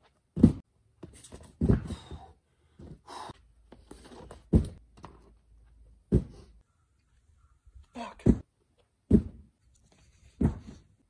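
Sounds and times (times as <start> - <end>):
heavy thumps: 0.3 - 3.1, 4.2 - 5.1, 6.0 - 6.5, 8.2 - 9.5, 10.3 - 10.9.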